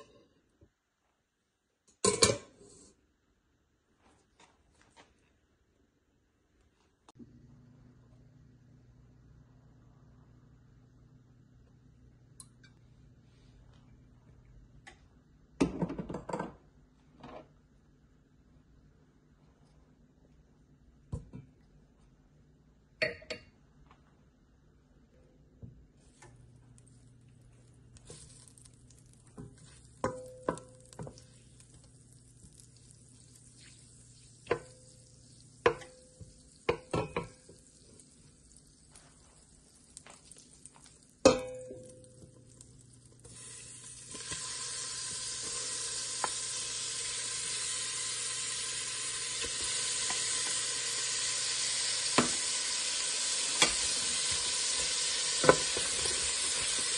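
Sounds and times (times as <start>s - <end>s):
butter sizzling in a pot: 26.2s - 56.9s
loud frying sizzle: 26.5s - 56.9s.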